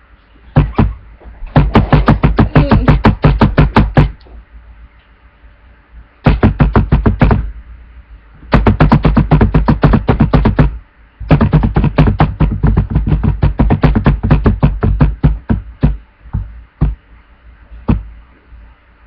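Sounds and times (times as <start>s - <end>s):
fast laptop keyboard typing: 1.6s - 4.1s, 8.5s - 10.7s, 11.3s - 16.0s.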